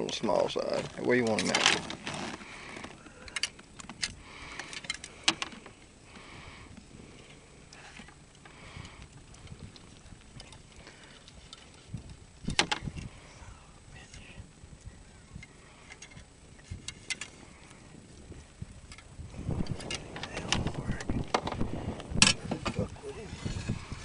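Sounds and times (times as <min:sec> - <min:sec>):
clicks and knocks in a boat: 0:07.8 - 0:13.1.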